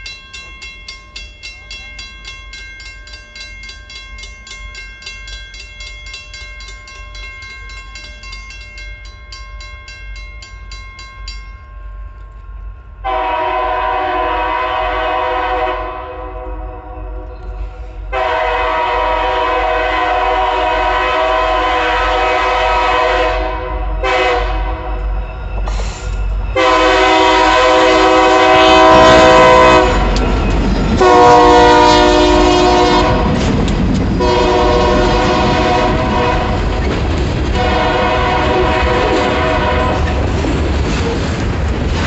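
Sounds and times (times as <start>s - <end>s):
locomotive engines rumbling: 0.0s - 42.0s
locomotive air horn blasts: 13.0s - 17.3s, 18.1s - 25.0s, 26.6s - 30.2s, 31.0s - 33.4s, 34.2s - 36.7s, 37.5s - 40.2s.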